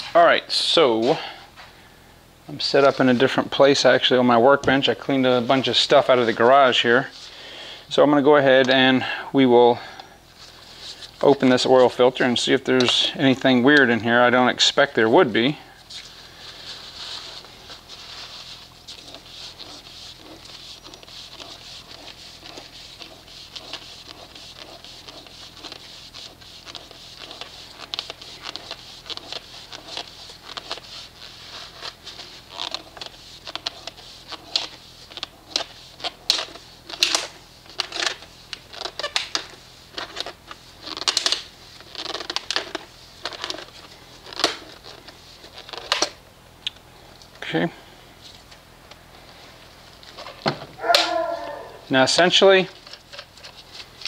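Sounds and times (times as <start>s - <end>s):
sharp clicks and scrapes: 17.2s - 46.8s.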